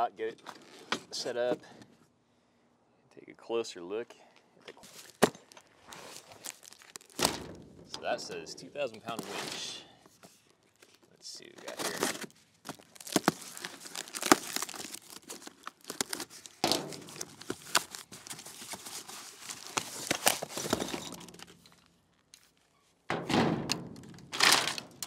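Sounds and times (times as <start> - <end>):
cardboard tearing and crumpling: 4.9 - 7.3, 11.6 - 21.6.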